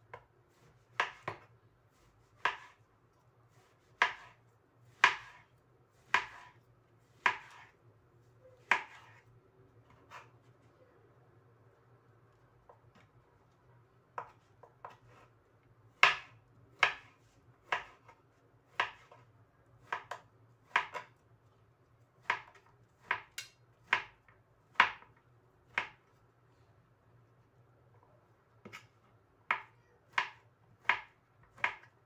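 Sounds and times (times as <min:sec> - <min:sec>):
knife chopping on plastic board: 0:00.1 - 0:01.5, 0:02.2 - 0:02.8, 0:03.8 - 0:07.8, 0:08.6 - 0:09.2, 0:14.1 - 0:15.3, 0:15.9 - 0:21.2, 0:22.2 - 0:26.1, 0:28.6 - 0:32.0.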